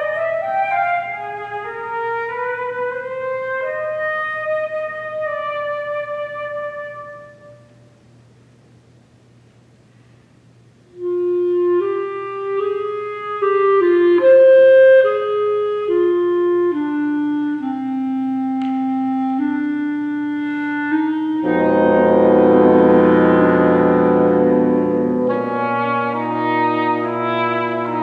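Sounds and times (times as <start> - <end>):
solo woodwind melody: 0.0 - 7.8, 10.9 - 28.0
wind ensemble sustained chords: 21.4 - 28.0.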